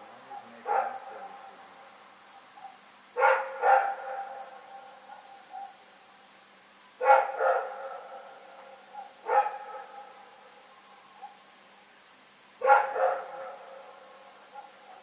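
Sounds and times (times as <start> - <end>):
dog barking: 0.1 - 1.5, 2.6 - 5.8, 7.0 - 10.3, 11.2 - 11.4, 12.6 - 15.0.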